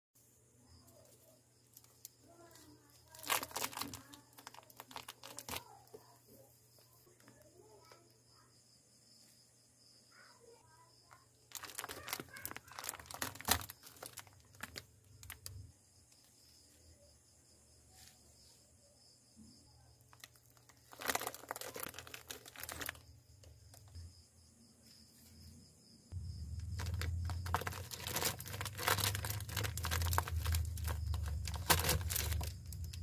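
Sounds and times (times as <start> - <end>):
plastic bags crinkling: 1.7 - 6.0, 11.5 - 15.6, 20.1 - 23.9, 26.4 - 33.0.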